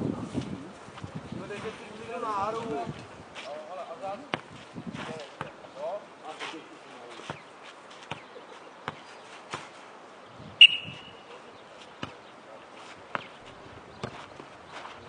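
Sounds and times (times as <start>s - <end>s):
football kicked and bouncing: 8.1s - 9.7s, 14.0s - 14.5s.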